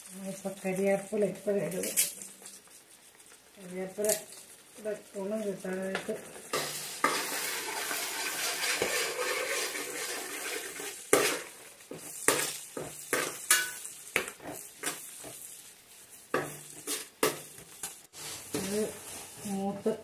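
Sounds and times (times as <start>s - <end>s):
leaves sizzling in hot oil: 0.0s - 20.0s
spoon scraping and clinking pot: 6.5s - 11.5s, 12.3s - 15.0s.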